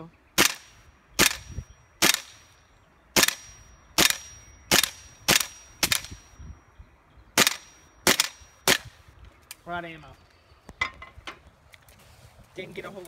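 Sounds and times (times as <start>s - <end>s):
airsoft rifle shots: 0.4s - 2.4s, 3.2s - 6.2s, 7.4s - 8.9s.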